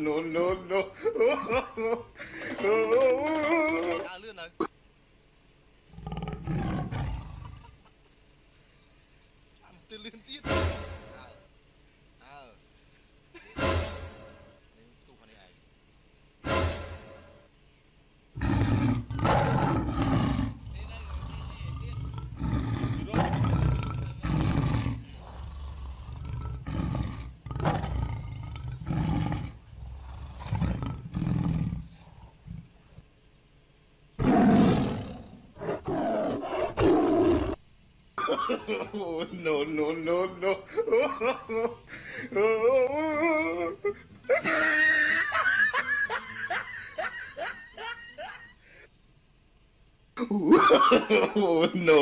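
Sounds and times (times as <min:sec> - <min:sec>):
person laughing: 0:00.0 - 0:04.1, 0:13.3 - 0:13.8, 0:38.2 - 0:48.8, 0:50.2 - 0:52.0
tiger roaring: 0:05.9 - 0:07.8, 0:18.4 - 0:33.0, 0:34.2 - 0:37.6.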